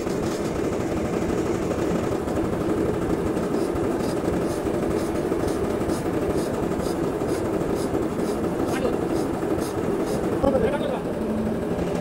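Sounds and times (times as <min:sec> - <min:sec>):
steady engine noise: 0:00.0 - 0:12.0.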